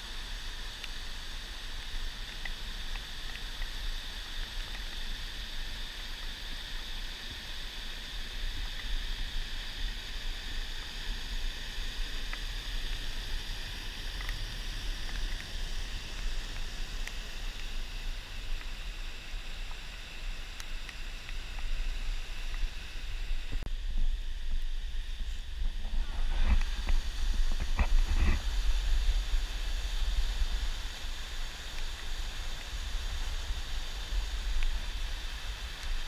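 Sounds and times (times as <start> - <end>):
low microphone rumble: 22.0 - 35.3.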